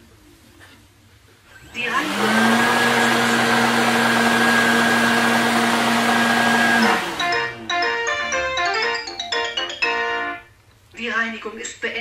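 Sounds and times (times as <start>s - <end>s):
robot vacuum motor whining: 1.6s - 7.6s
short electronic melody: 7.1s - 10.5s.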